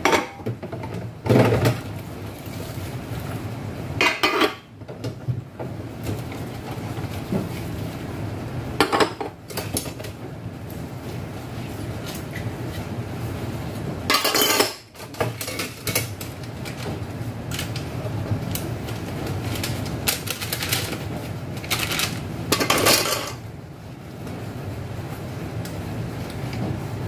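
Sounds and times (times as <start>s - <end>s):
dishes clinking in a metal basin: 0.0s - 1.8s, 4.0s - 4.6s, 14.1s - 16.2s, 22.5s - 23.4s.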